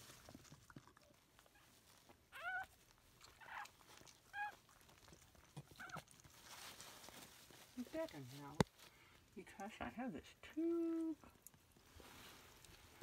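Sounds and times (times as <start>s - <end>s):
puppy squeaky cries: 2.3s - 2.7s, 4.3s - 4.6s.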